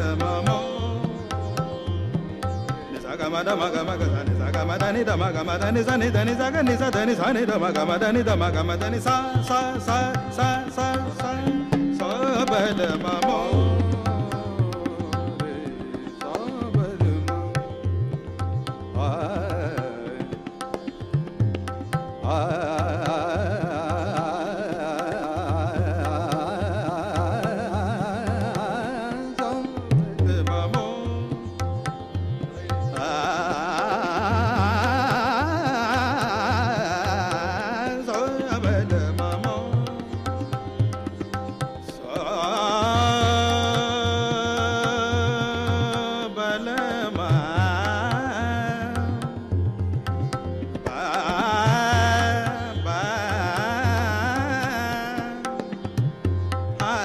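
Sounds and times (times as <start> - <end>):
harmonium: 0.0 - 57.0
tabla rhythm: 0.0 - 57.0
tanpura drone: 0.0 - 57.0
men singing melismatic runs: 2.9 - 17.5, 50.9 - 55.5.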